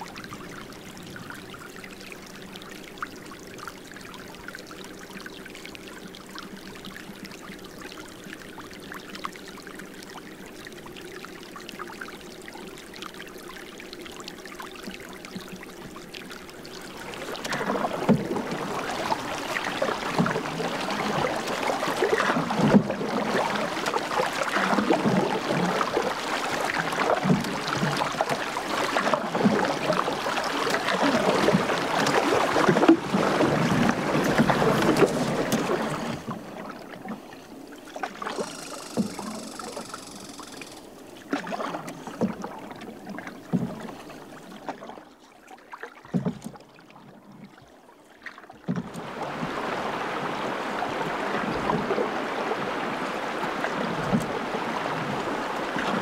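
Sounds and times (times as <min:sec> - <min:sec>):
water trickling and splashing: 0:00.0 - 0:56.0.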